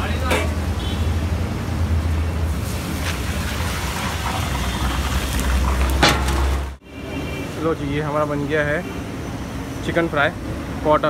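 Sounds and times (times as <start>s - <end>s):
hot oil sizzling: 2.4s - 6.8s.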